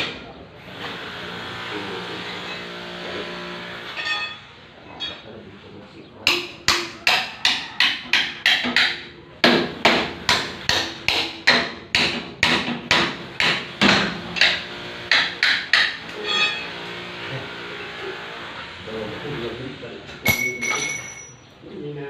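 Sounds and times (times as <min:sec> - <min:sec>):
hammer striking steel frame: 0:06.3 - 0:16.9, 0:20.2 - 0:21.4.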